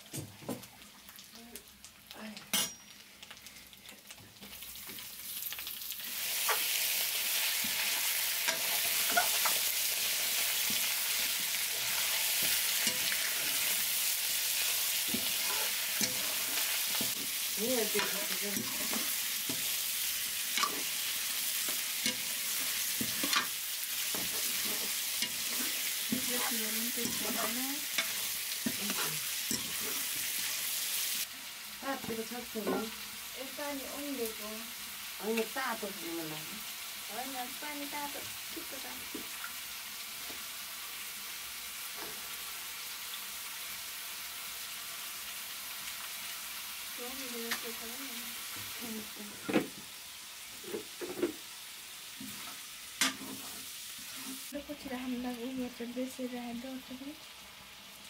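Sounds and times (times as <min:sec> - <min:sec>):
chicken sizzling in hot oil: 0:00.0 - 0:58.0
metal spatula scraping pan: 0:14.6 - 0:30.7.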